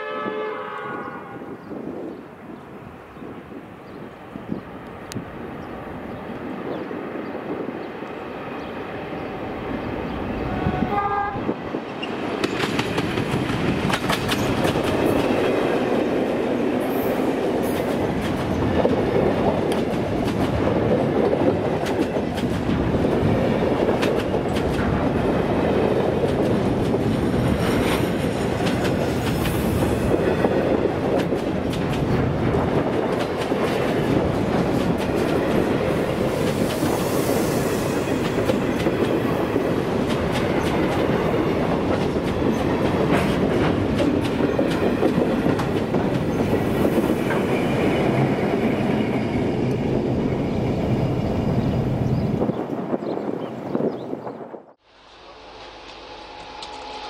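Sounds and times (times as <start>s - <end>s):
train horn: 0.0s - 1.8s, 10.4s - 11.6s, 55.3s - 57.0s
diesel locomotives approaching: 0.0s - 57.0s.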